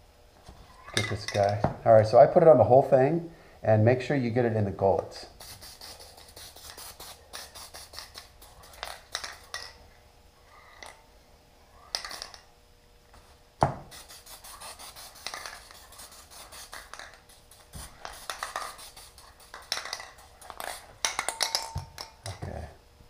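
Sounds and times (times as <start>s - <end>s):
aerosol can spitting spray: 5.4s - 9.3s, 13.8s - 20.8s.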